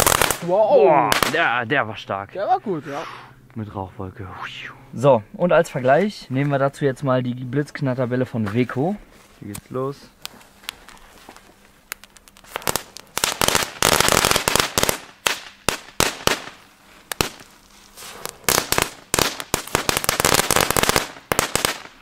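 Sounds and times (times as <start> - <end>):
crackling firework balls: 0.0 - 1.6, 9.5 - 22.0.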